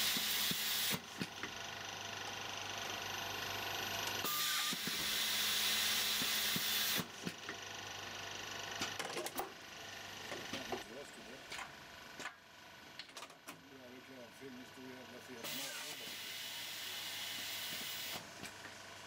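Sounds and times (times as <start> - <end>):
labelling machine humming: 13.7 - 19.0.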